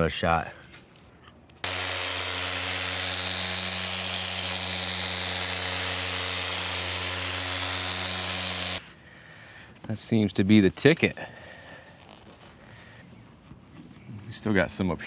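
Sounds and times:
power polisher motor whining: 1.6s - 8.8s.

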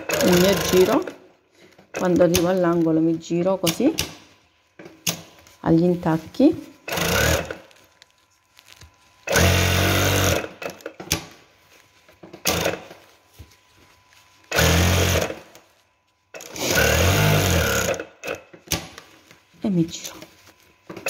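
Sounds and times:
sewing machine stitching: 0.0s - 1.2s, 6.9s - 7.7s, 9.2s - 11.0s, 12.4s - 13.0s, 14.5s - 15.5s, 16.4s - 18.5s.

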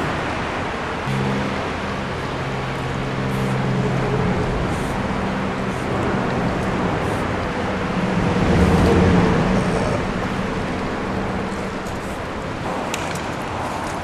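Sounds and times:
traffic rumble: 0.0s - 14.0s
vehicle passing: 0.0s - 14.0s
spray can hissing: 3.3s - 3.7s, 4.6s - 5.0s, 5.6s - 6.0s, 7.0s - 7.3s, 11.8s - 12.2s.

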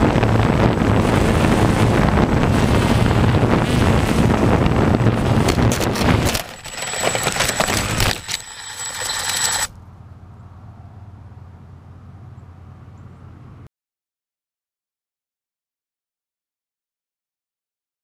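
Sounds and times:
high motor whine: 0.0s - 9.8s
drone clattering: 5.2s - 9.7s.

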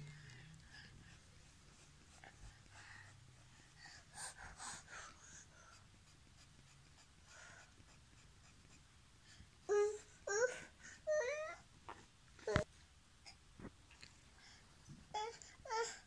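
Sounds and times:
pencil scratching on paper: 5.7s - 8.9s.

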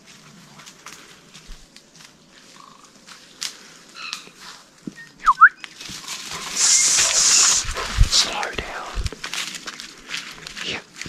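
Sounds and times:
footsteps in leaf litter: 0.0s - 4.7s, 5.7s - 11.0s
person whistling two notes: 5.2s - 5.6s
loud hissy rustling: 5.7s - 11.0s.

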